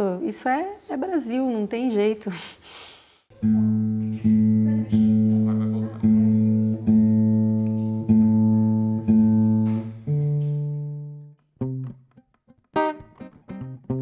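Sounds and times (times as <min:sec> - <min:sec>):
fingerpicked guitar notes: 0:03.3 - 0:14.0
guitar strings plucked: 0:03.3 - 0:14.0.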